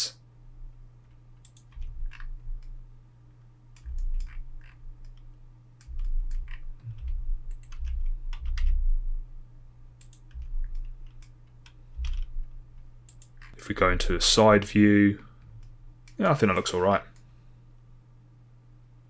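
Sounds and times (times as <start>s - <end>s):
steady low hum: 0.0s - 19.0s
keyboard keys clicking: 1.4s - 2.7s, 3.8s - 8.8s, 10.0s - 13.6s.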